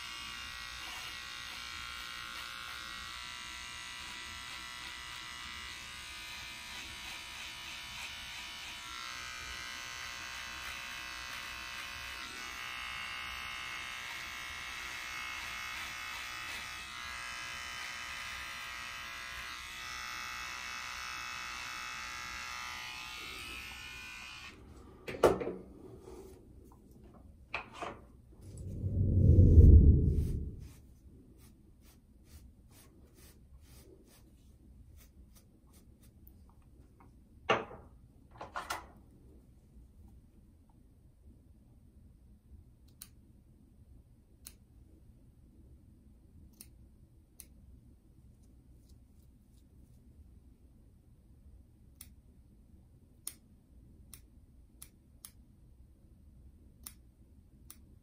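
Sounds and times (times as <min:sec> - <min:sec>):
brush stroking through beard: 0:28.6 - 0:36.3
fingers rustling beard: 0:29.4 - 0:36.3
scissors snipping hair: 0:46.5 - 0:46.8, 0:53.2 - 0:53.4, 0:54.1 - 0:55.4, 0:56.8 - 0:57.0.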